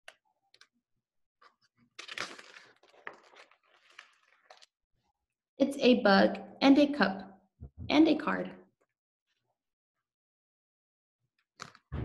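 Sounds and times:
book pages rustling: 0:01.4 - 0:04.8, 0:11.5 - 0:11.9.

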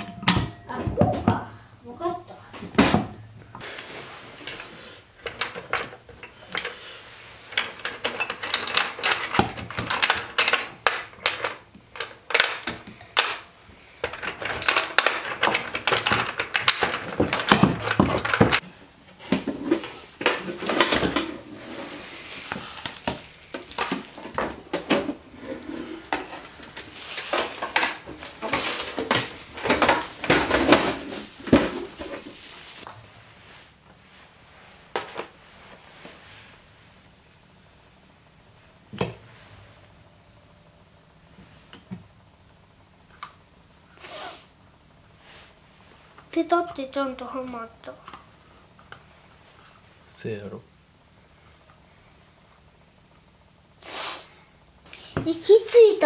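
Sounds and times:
metal engine parts clinking: 0:07.6 - 0:13.4, 0:20.2 - 0:21.7.

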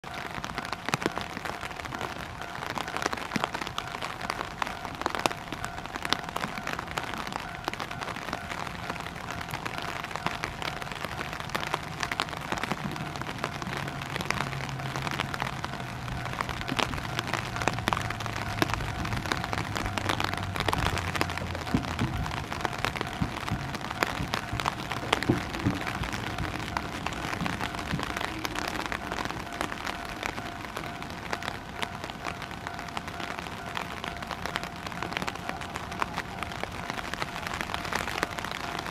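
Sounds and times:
level crossing alarm: 0:00.0 - 0:38.9
steady rain with drips: 0:00.0 - 0:38.9.

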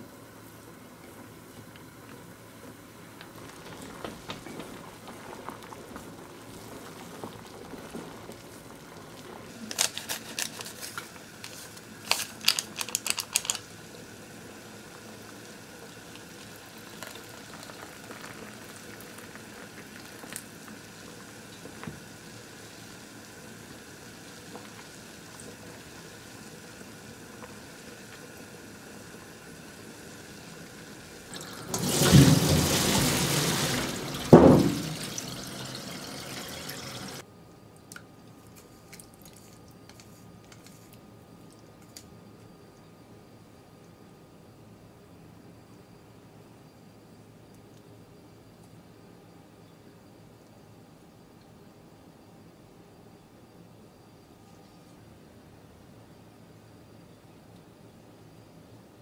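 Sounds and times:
water simmering in saucepan: 0:00.2 - 0:37.2
water draining through colander: 0:03.2 - 0:11.3, 0:12.1 - 0:37.2
water poured from kettle: 0:14.8 - 0:22.2, 0:30.7 - 0:37.2.

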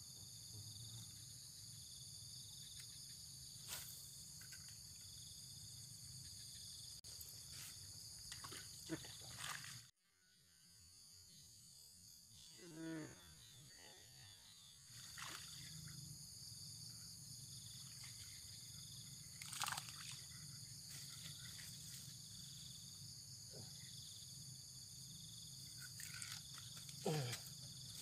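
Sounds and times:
insects chirping: 0:00.0 - 0:28.0
water splash: 0:19.4 - 0:20.2.

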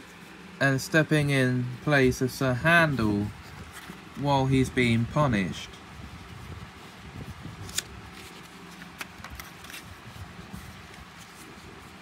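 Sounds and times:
book page turning: 0:03.2 - 0:04.2, 0:06.8 - 0:12.0.

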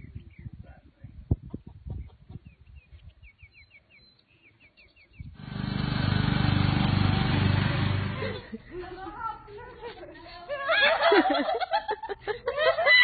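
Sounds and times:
small bird chirping: 0:01.6 - 0:05.4
riding lawn mower engine: 0:05.4 - 0:08.6.

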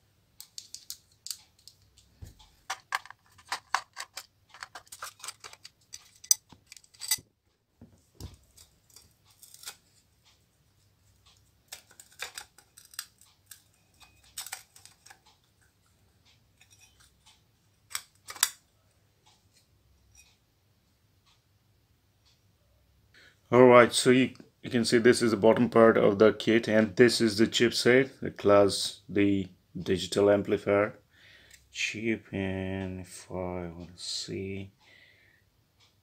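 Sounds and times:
small metallic clicks and scrapes: 0:00.4 - 0:07.3, 0:08.2 - 0:10.4, 0:11.0 - 0:20.4.

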